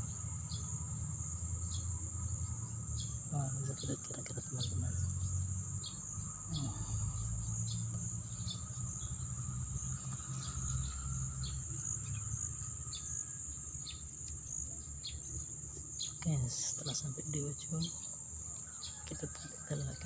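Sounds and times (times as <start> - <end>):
high-pitched insect chorus: 0.0 - 20.0.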